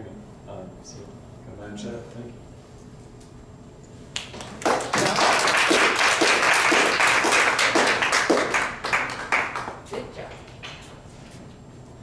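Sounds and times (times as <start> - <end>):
audience applauding: 4.2 - 9.9.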